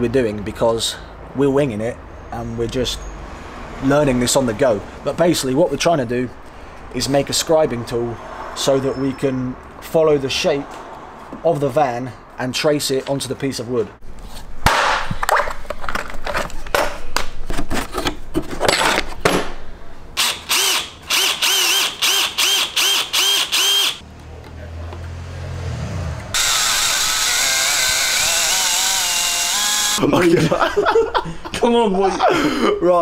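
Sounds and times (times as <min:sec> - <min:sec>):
cordless drill boring wood: 0:20.2 - 0:24.0, 0:26.4 - 0:30.0.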